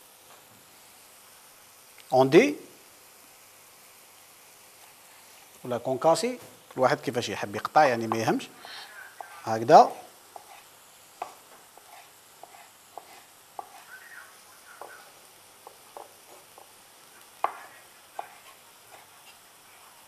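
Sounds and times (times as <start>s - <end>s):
knife tapping cutting board: 8.1s - 8.4s, 11.2s - 13.8s, 15.6s - 16.7s, 17.4s - 18.5s.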